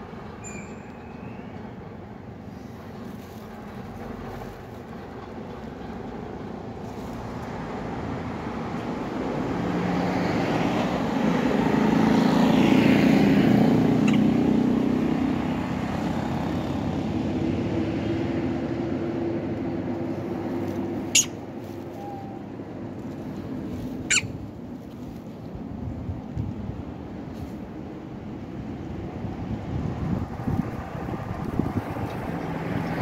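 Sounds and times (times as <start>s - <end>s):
car passing: 6.0s - 25.2s, 28.1s - 33.0s.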